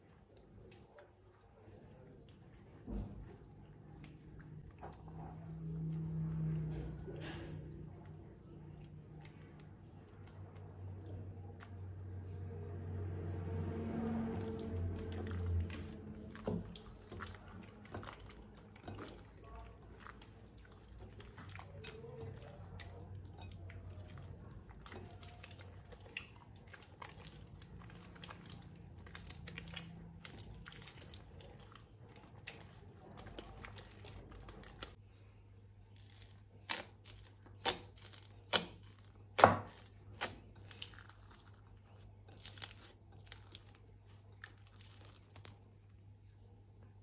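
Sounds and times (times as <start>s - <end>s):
plastic crinkling and tearing: 36.0s - 45.9s.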